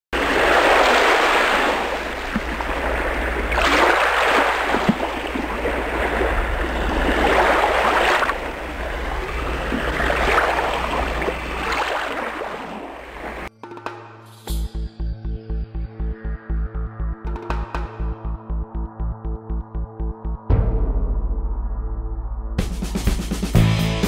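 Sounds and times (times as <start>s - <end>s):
waves breaking on a beach: 0.2s - 13.5s
steady low rumble: 8.3s - 11.8s, 18.0s - 22.9s.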